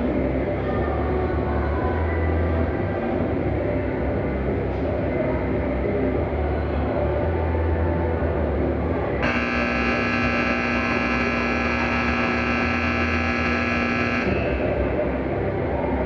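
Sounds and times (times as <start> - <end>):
horn steady tone: 9.2 - 15.0.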